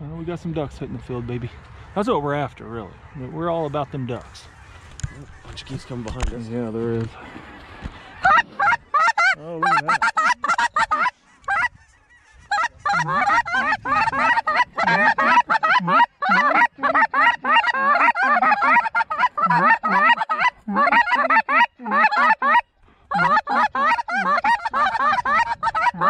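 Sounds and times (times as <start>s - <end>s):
goose call honks and clucks: 6.9s - 26.0s.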